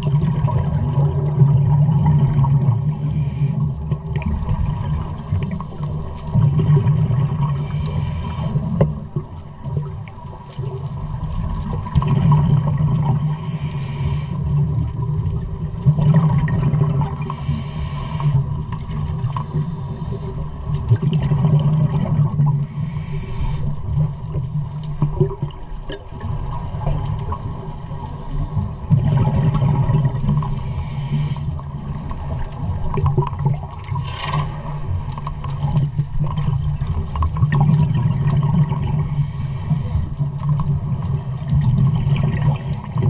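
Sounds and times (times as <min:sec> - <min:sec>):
exhaled air bubbling: 0:00.0 - 0:43.0
regulator hissing inhalation: 0:02.8 - 0:03.6, 0:07.4 - 0:08.6, 0:13.1 - 0:14.4, 0:17.2 - 0:18.4, 0:19.4 - 0:20.4, 0:22.5 - 0:23.7, 0:30.2 - 0:31.5, 0:34.1 - 0:34.8, 0:38.9 - 0:40.2, 0:42.3 - 0:42.9.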